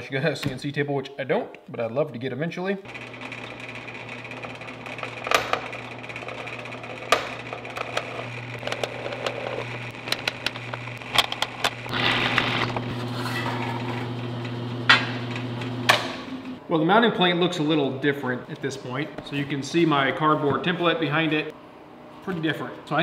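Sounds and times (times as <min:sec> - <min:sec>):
drill press motor humming: 0:02.9 - 0:16.6.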